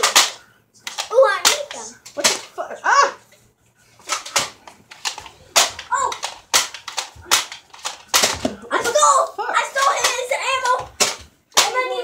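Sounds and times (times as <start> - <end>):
toy blasters clacking: 0.0 - 2.6, 4.1 - 12.0
child's voice: 1.1 - 2.0, 5.9 - 6.2, 8.7 - 11.0, 11.6 - 12.0.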